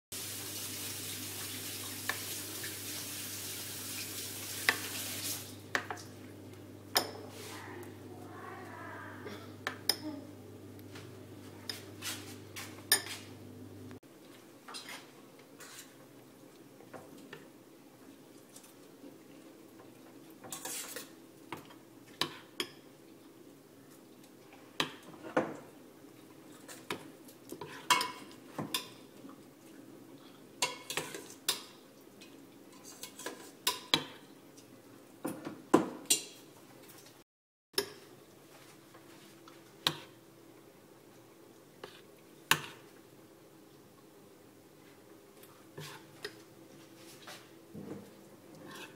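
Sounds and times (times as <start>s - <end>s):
spoon scraping ceramic bowl: 20.5s - 21.1s, 48.6s - 48.9s.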